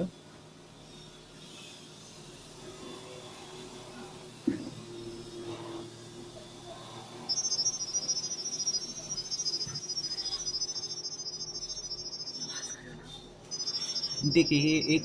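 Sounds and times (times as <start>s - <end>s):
rapid high-pitched beeps: 7.2s - 12.8s, 13.5s - 15.0s.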